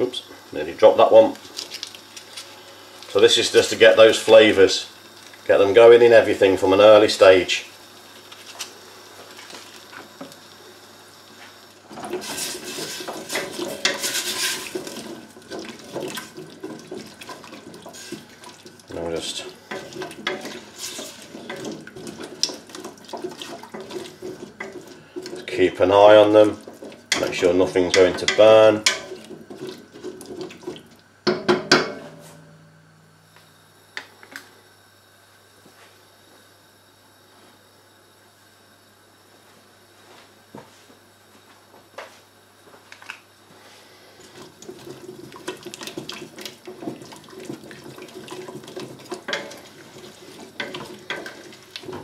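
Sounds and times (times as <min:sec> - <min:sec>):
wooden spoon stirring in pot: 0:11.8 - 0:31.5, 0:44.2 - 0:52.0
spoon scraping a metal pot: 0:12.1 - 0:15.0.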